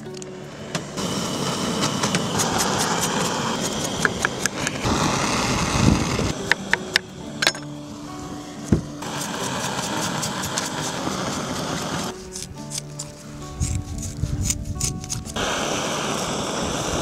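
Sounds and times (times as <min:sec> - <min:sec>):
blowtorch flame roaring: 0:00.5 - 0:12.2, 0:15.4 - 0:17.0
blade scraping charred wool: 0:01.0 - 0:17.0.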